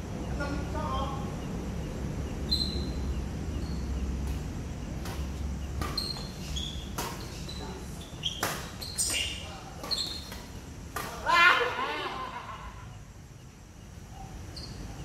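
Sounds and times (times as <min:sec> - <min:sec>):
shoe squeaks: 0:02.4 - 0:04.0, 0:04.8 - 0:10.6, 0:14.4 - 0:15.0
rackets hitting shuttlecock: 0:04.2 - 0:11.8.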